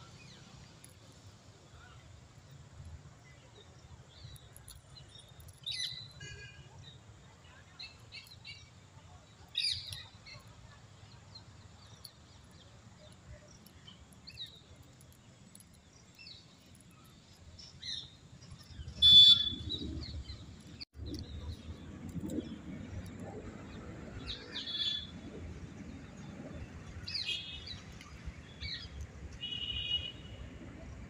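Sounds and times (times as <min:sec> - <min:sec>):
birds chirping: 0:03.2 - 0:23.0.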